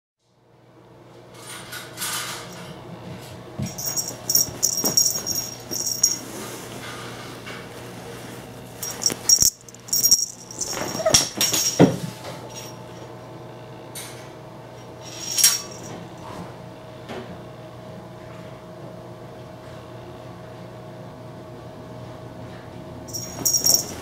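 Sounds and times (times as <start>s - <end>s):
toy rattling and jingling: 3.6s - 6.2s, 8.8s - 12.8s, 15.0s - 15.9s, 23.1s - 24.0s.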